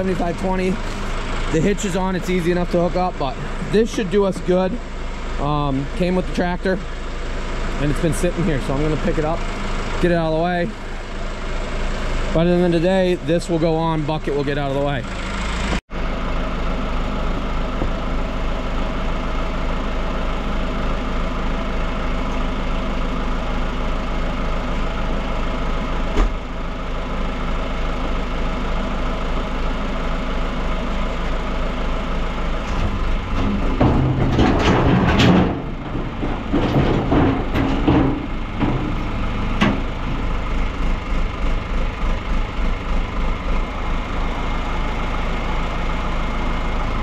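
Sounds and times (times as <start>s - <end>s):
tractor engine running: 0.0s - 47.0s
uneven clattering: 32.8s - 39.9s.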